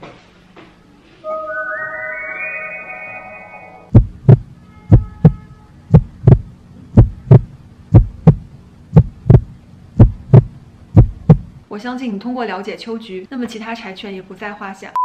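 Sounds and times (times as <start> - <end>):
low steady hum: 1.0 - 12.4
heartbeat thumps: 3.9 - 11.6.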